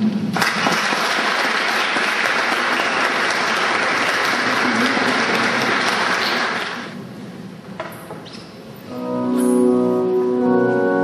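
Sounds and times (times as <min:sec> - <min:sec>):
audience applauding: 0:00.3 - 0:07.0.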